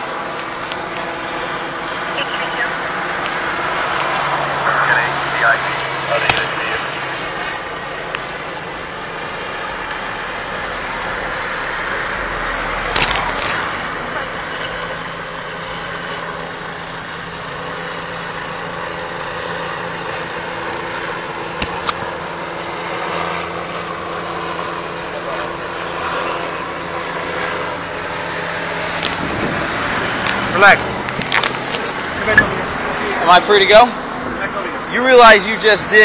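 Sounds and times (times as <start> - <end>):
street traffic noise: 0.0 - 36.0
scraping crackle: 12.9 - 15.1.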